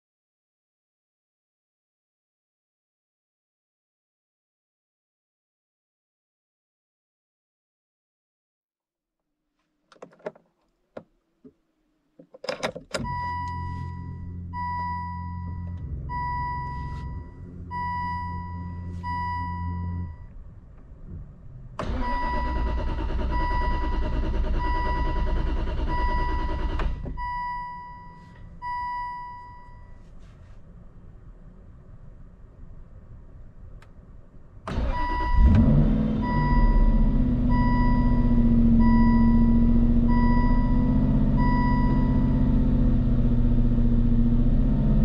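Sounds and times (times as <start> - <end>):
ignition clicks: 12.2 - 14.1
dashboard warning chime: 12.5 - 20.3, 22.0 - 30.1, 36.2 - 42.4.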